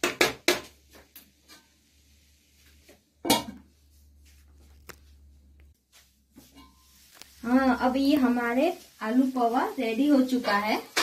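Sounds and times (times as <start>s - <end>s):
spoon scraping in pan: 1.2s - 2.7s, 6.3s - 11.0s.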